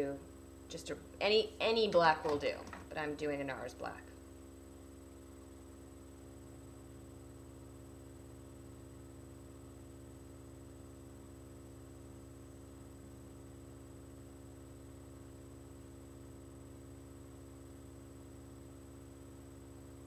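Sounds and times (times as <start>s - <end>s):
electrical hum: 0.0s - 20.0s
faint high-pitched whine: 0.0s - 20.0s.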